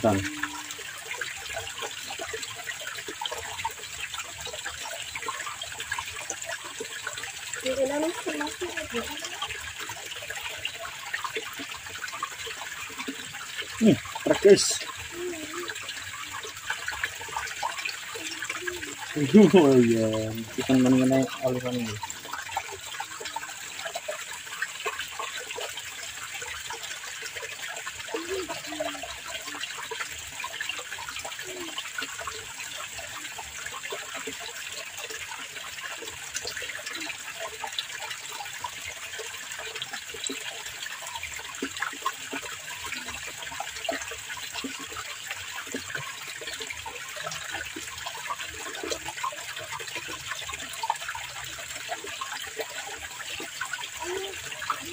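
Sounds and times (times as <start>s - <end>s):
water flowing and trickling: 0.0s - 54.9s.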